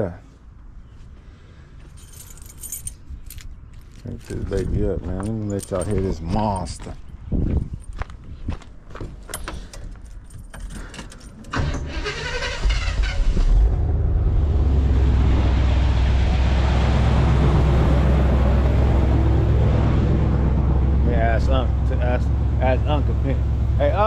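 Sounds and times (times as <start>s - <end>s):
car keys jingling: 1.9s - 8.0s, 9.2s - 11.6s
car engine starting and idling: 9.4s - 24.0s.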